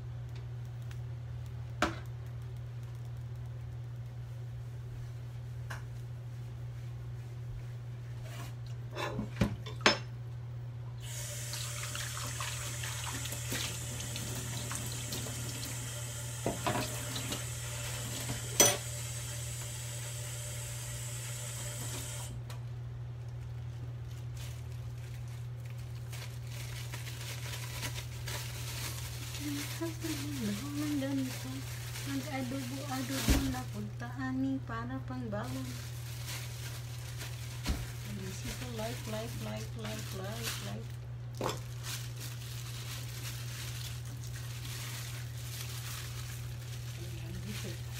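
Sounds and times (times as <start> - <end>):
steady low hum: 0.0 - 11.0
water tap running into sink: 11.0 - 22.3.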